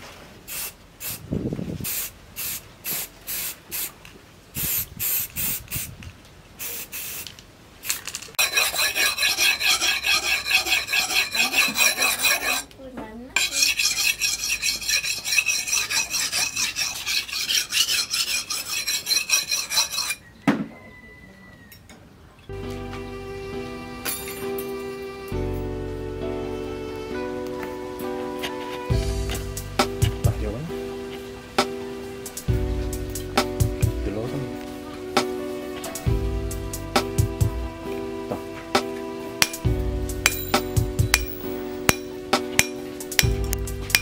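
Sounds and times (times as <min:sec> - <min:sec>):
aerosol spray can hissing: 0:00.5 - 0:01.2, 0:01.9 - 0:03.9, 0:04.6 - 0:05.9, 0:06.6 - 0:08.0
blade scraping on whetstone: 0:08.4 - 0:12.7, 0:13.4 - 0:20.3, 0:39.4 - 0:44.0.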